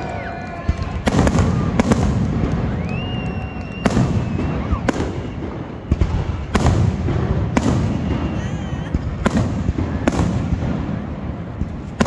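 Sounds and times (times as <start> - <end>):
firework whistle: 0.0 - 10.4.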